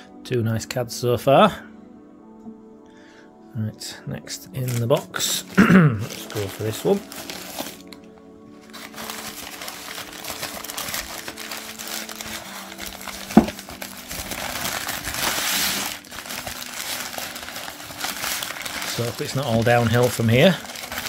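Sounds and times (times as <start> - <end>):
newspaper crinkling: 4.5 - 21.0.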